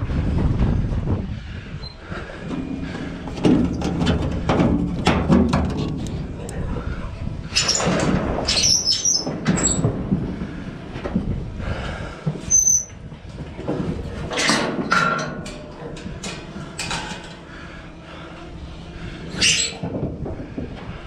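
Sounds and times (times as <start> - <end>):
metal gate rattling and clanking: 2.4 - 6.5, 14.2 - 17.6
high squeaks: 8.5 - 9.8, 12.5 - 13.0, 19.3 - 19.8.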